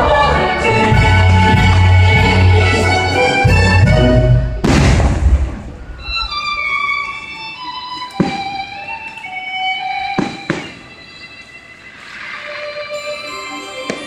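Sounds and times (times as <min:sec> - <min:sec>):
orchestral christmas music: 0:00.0 - 0:04.7, 0:06.1 - 0:14.0
firework bang: 0:04.6 - 0:06.2.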